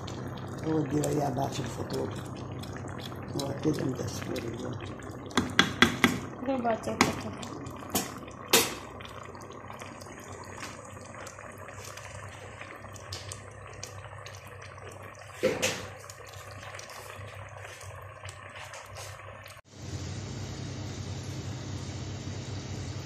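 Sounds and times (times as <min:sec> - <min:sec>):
broth simmering: 0:00.0 - 0:23.0
spoon knocking on pot rim: 0:05.4 - 0:06.2.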